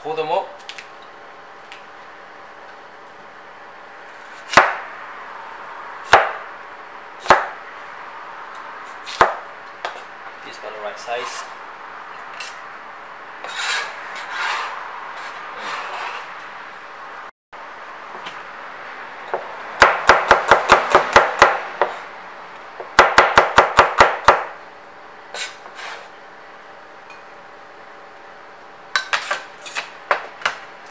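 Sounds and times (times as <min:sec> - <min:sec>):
scraping and handling sounds: 0:13.4 - 0:16.4.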